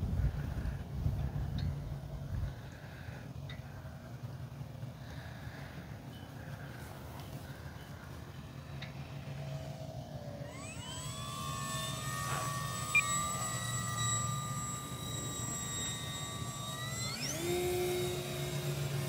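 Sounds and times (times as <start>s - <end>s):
wind rumble on microphone: 0.0s - 2.7s
electric motor and propeller whine: 0.0s - 19.0s.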